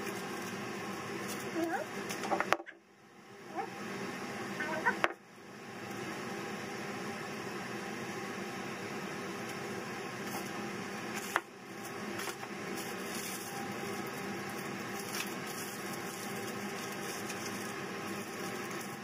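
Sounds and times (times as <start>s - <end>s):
kitchen background hum: 0.0s - 19.0s
aluminium foil handling: 12.2s - 19.0s.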